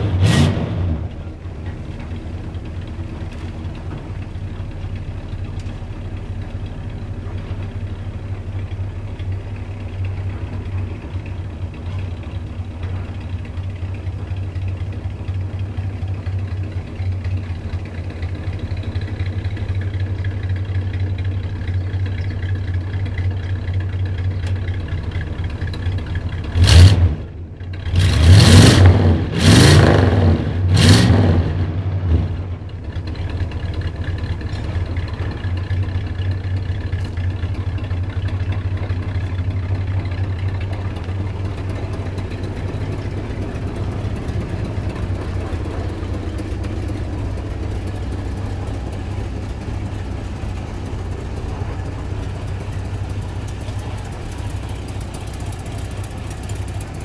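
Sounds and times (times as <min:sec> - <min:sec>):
car engine revving: 0:00.0 - 0:01.4, 0:26.4 - 0:32.7, 0:40.8 - 0:57.0
car engine idling: 0:00.0 - 0:57.0.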